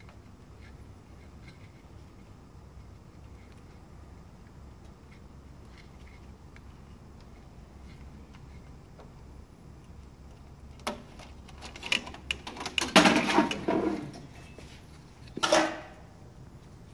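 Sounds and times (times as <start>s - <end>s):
fan unit housing clattering: 10.3s - 16.1s.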